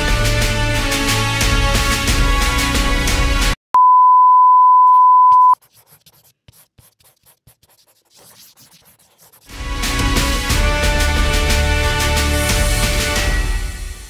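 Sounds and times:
single-pitch electronic beep: 3.8 - 5.6
upbeat background music: 9.5 - 14.0.

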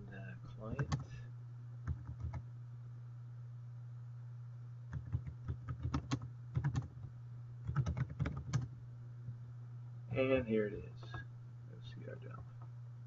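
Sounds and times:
steady low hum: 0.0 - 13.0
computer keyboard typing: 0.8 - 1.1, 1.8 - 2.4, 4.9 - 8.7.

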